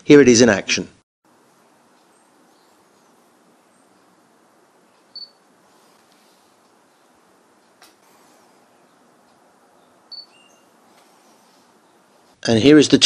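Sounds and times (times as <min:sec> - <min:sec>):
faint steady hiss: 0:01.3 - 0:13.0
camera beep: 0:05.1 - 0:05.4, 0:10.1 - 0:10.6.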